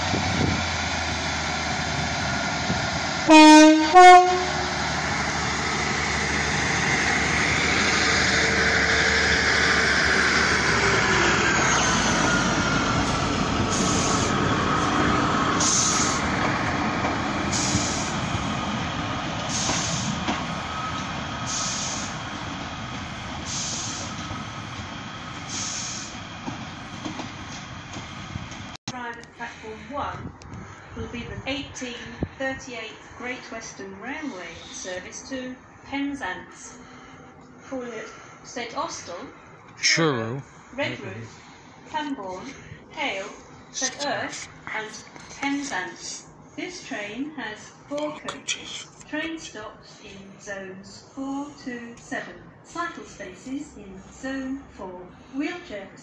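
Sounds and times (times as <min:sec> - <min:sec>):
rushing wheel noise: 0:00.0 - 0:28.8
diesel train rumble: 0:00.0 - 0:56.0
two-tone train horn: 0:03.3 - 0:04.8.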